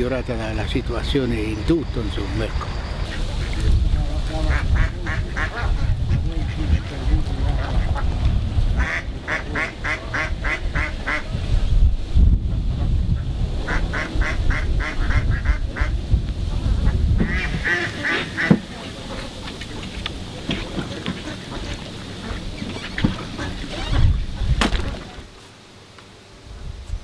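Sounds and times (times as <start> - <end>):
duck quacking: 4.4 - 8.1, 8.8 - 11.3, 13.6 - 16.0, 16.8 - 19.9, 20.6 - 24.2.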